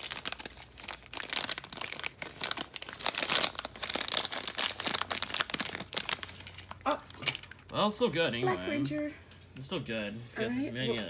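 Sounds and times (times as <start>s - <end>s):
foil pouch crinkling: 0.0s - 7.2s.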